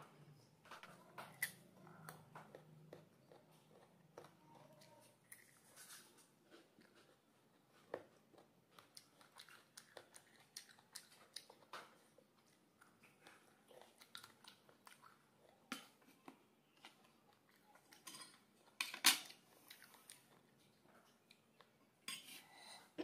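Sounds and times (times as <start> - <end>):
chewing with wet mouth clicks: 6.5 - 21.8.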